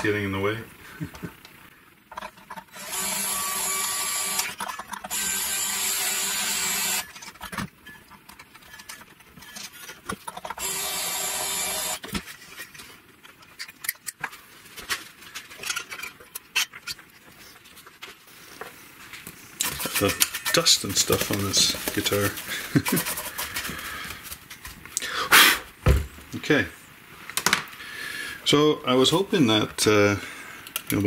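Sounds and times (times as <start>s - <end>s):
small electric motor whirring: 2.7s - 7.2s, 10.6s - 12.0s.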